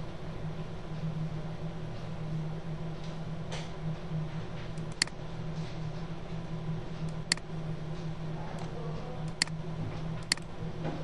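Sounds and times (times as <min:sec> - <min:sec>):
steady low hum: 0:00.0 - 0:11.0
computer mouse clicks: 0:04.8 - 0:05.2, 0:07.1 - 0:07.4, 0:09.3 - 0:09.6, 0:10.2 - 0:10.5.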